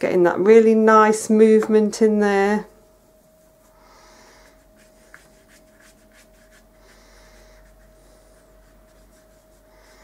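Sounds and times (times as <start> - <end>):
paintbrush scratching on paper: 4.4 - 10.0.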